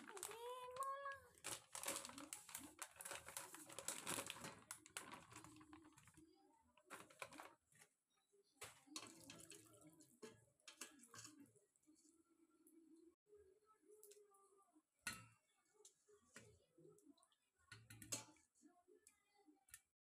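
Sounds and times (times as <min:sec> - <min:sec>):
plastic packet crinkling: 0:00.0 - 0:07.8.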